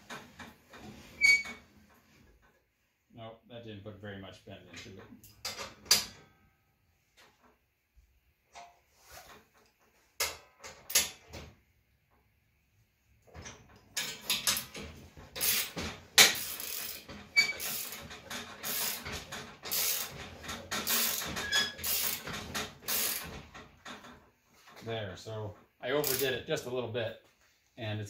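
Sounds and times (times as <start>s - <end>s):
slip roller clicking and rattling: 13.3s - 24.2s, 26.0s - 26.4s.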